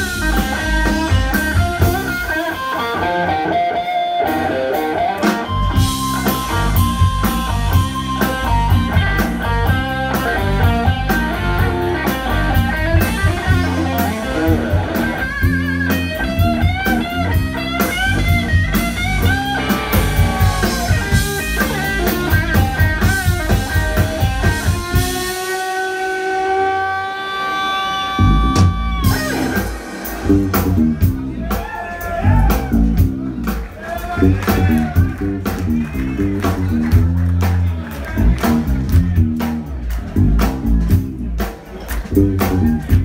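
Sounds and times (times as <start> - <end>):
lead guitar bending lines: 0.0 - 31.5
blues band playing: 0.0 - 43.0.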